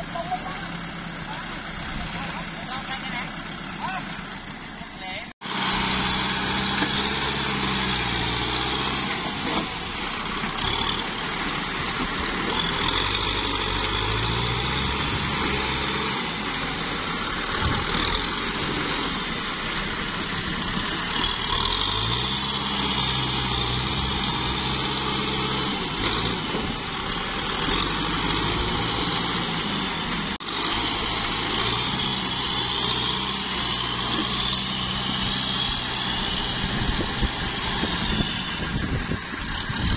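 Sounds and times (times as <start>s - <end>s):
tractor diesel engine labouring: 0.0s - 39.9s.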